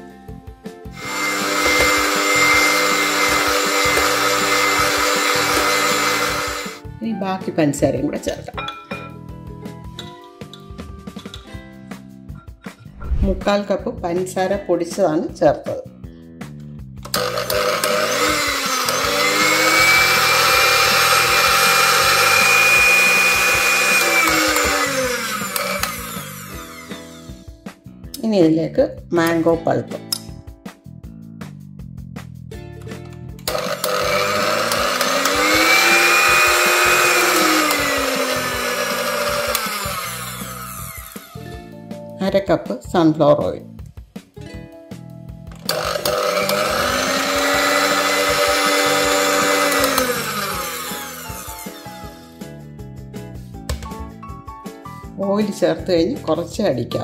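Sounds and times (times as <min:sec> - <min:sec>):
electric hand mixer whisking: 0:00.9 - 0:06.8, 0:17.1 - 0:27.6, 0:33.5 - 0:41.4, 0:45.6 - 0:52.5.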